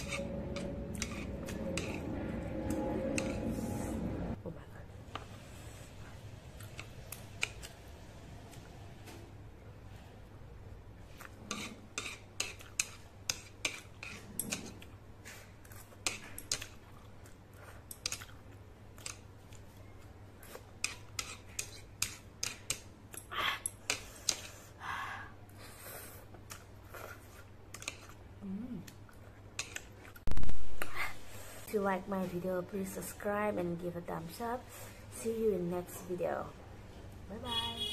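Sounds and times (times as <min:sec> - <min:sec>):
chewing: 0:26.3 - 0:28.2.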